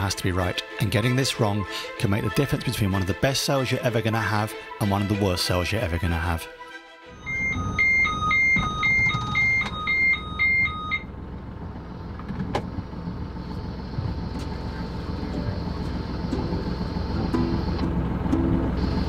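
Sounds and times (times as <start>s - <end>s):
electronic two-tone beeping: 7.1s - 11.1s
boat engine rumble: 7.1s - 19.0s.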